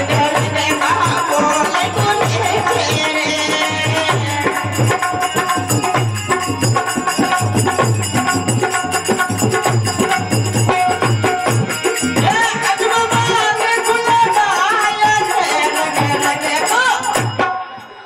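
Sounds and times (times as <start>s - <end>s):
person singing: 0.0s - 5.4s
drum beat: 0.0s - 16.5s
harmonium melody: 0.0s - 18.0s
small hand cymbals jingling: 4.8s - 12.2s.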